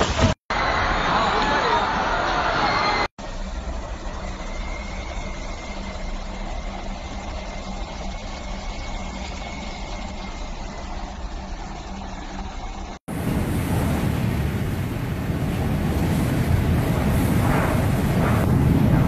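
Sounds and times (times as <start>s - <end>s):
strong wind rumble and hiss: 13.1s - 19.0s.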